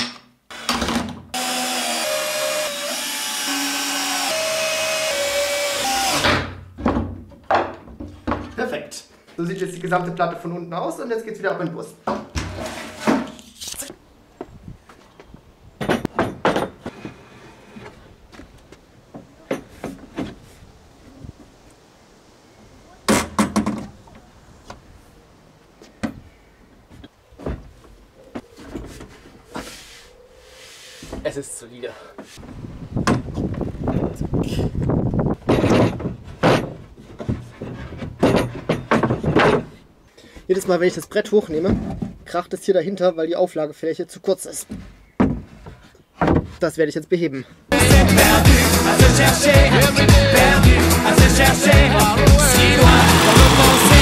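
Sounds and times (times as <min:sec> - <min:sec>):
cordless drill driving screws: 0:00.5 - 0:06.4, 0:52.6 - 0:54.0.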